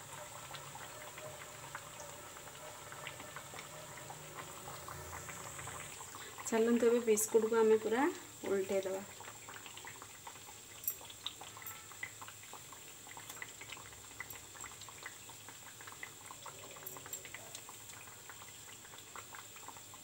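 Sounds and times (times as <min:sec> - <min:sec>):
biscuits frying in oil: 0:00.0 - 0:20.0
small pops and crackles: 0:09.1 - 0:16.5.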